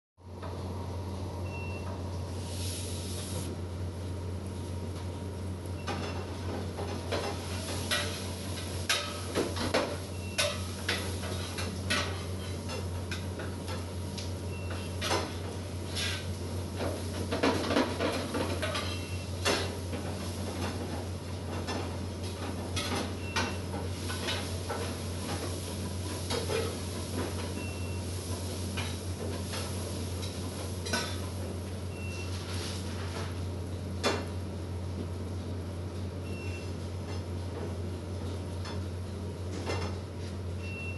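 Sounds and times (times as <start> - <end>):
metal utensils clanking on pots: 8.8 - 13.2.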